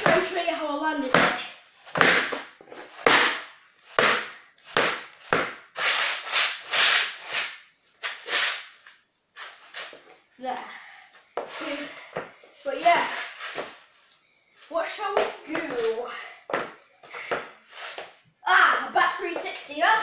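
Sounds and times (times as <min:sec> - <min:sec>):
skateboard deck scraping on floor: 0:01.1 - 0:10.0, 0:12.8 - 0:13.9, 0:17.1 - 0:18.2.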